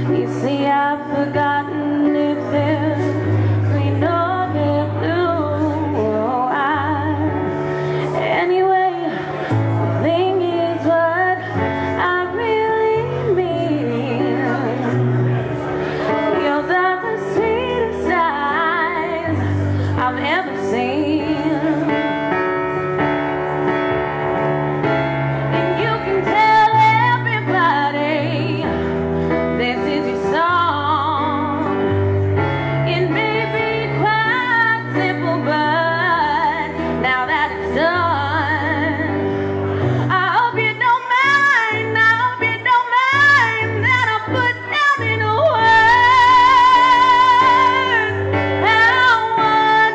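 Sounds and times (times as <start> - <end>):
woman singing with vibrato: 0.0 - 15.4, 16.0 - 22.2, 25.5 - 49.9
instrumental accompaniment: 0.0 - 49.9.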